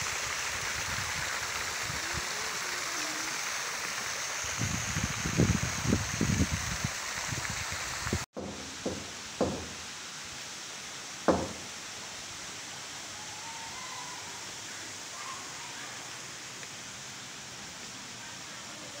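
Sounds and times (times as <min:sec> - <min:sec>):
door knocker on wooden door: 0:08.4 - 0:09.8, 0:11.3 - 0:11.7.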